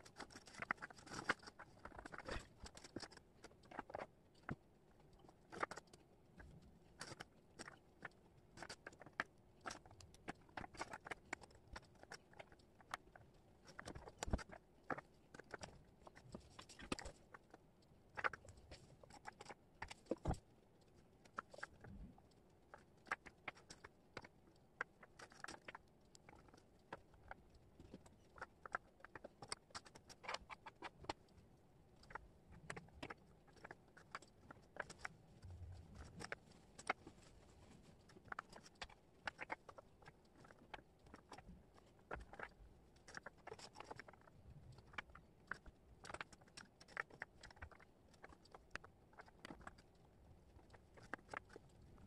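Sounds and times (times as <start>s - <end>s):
wooden puzzle pieces clicking: 32.0s - 35.1s, 38.2s - 49.8s.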